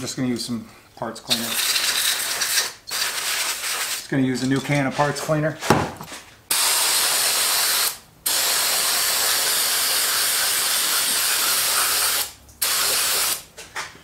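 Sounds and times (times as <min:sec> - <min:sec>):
aerosol spraying: 0:01.3 - 0:04.1, 0:06.5 - 0:13.4.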